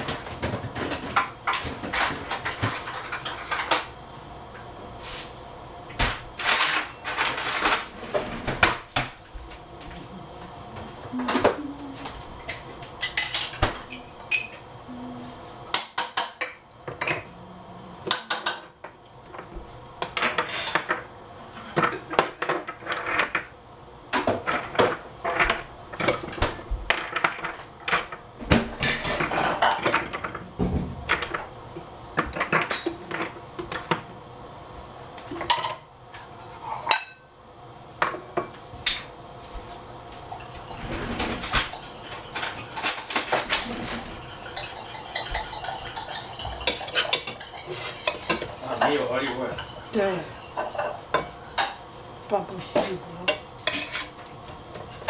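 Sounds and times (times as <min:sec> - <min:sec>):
metal utensils clinking on dishes: 0:06.4 - 0:08.3, 0:12.4 - 0:14.7, 0:20.2 - 0:21.0, 0:40.3 - 0:51.9, 0:52.7 - 0:55.0.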